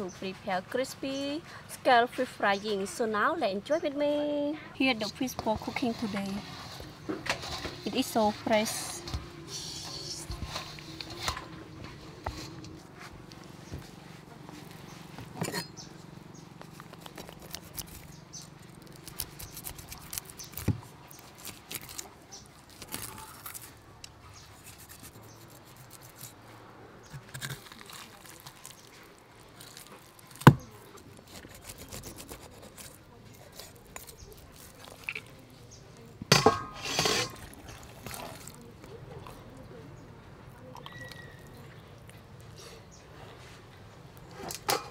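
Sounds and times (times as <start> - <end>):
knife scraping fish scales: 24.4 - 26.4, 30.4 - 35.2, 36.6 - 38.6.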